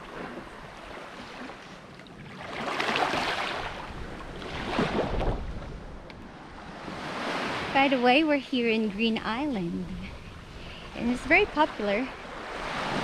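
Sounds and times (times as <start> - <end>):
small waves lapping on shore: 0.0 - 13.0
wind on microphone: 3.1 - 13.0.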